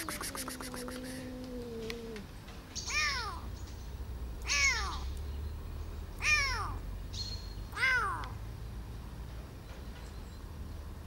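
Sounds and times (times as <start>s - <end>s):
kitten meowing: 2.9s - 3.5s, 4.4s - 5.0s, 6.2s - 6.8s.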